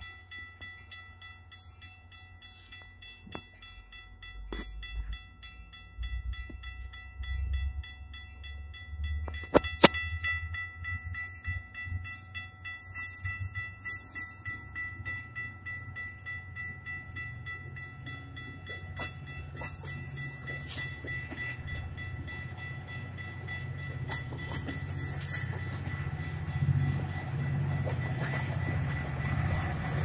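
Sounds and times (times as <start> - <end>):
steady high tone: 0.0 - 30.0
train wheels clicking over rail joints: 17.2 - 30.0.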